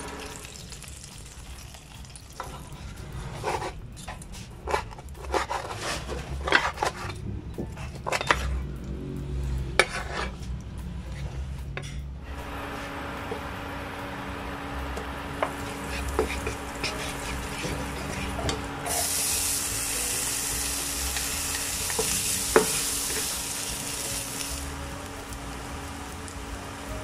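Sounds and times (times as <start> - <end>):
butter melting in frying pan: 0.0 - 3.2, 14.6 - 27.0
loud sizzle of food frying: 0.0 - 4.4, 12.3 - 27.0
wooden spatula scraping pan: 4.4 - 7.1, 9.8 - 10.4, 15.4 - 19.2.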